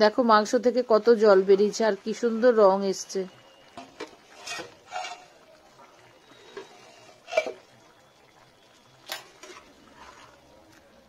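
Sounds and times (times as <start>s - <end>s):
spatula scraping pan: 3.8s - 5.5s, 6.3s - 7.7s, 9.2s - 10.4s.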